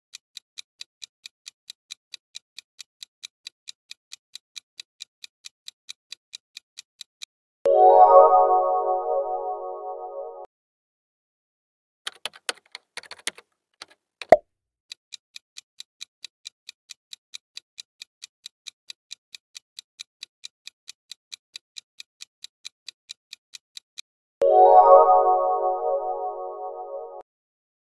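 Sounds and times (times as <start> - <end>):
countdown timer ticking: 7.7 - 10.5, 24.4 - 27.2
scattered clicks: 12.1 - 14.4.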